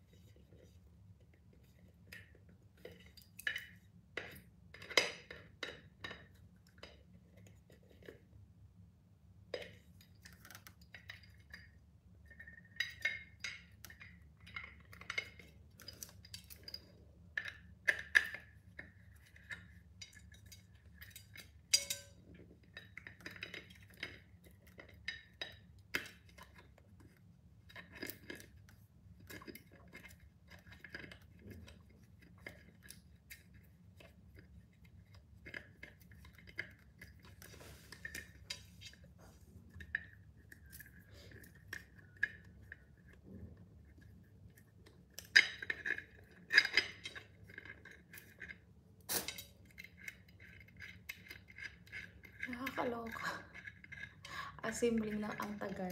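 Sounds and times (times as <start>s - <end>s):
metal clinking on glass: 20.1s - 22.2s.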